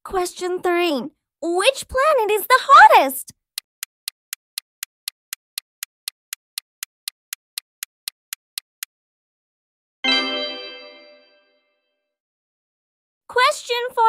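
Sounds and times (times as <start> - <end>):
countdown timer ticking: 3.6 - 8.9
bright chime: 10.1 - 11.7.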